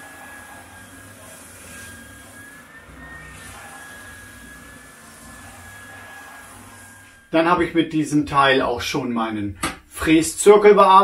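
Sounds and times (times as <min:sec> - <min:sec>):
wooden board sanded on belt: 0:00.0 - 0:07.2
belt sander running: 0:00.0 - 0:07.6.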